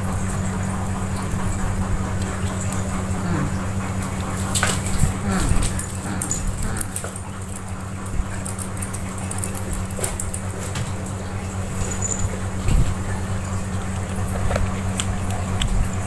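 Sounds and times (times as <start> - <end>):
paws knocking and scraping on tiles: 1.2 - 13.1
kitten mewing: 3.2 - 3.6, 5.0 - 7.1.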